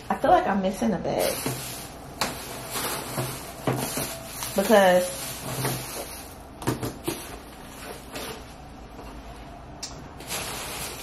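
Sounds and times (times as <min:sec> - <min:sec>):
knocks and plastic bag rustles: 0:01.2 - 0:08.5.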